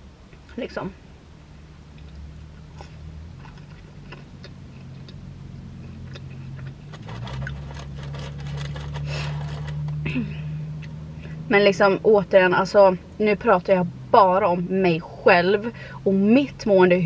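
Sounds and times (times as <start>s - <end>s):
steady low hum: 0.0s - 17.0s
chewing french fries: 2.0s - 5.2s, 5.8s - 10.0s
paper bag crackling: 6.9s - 10.1s.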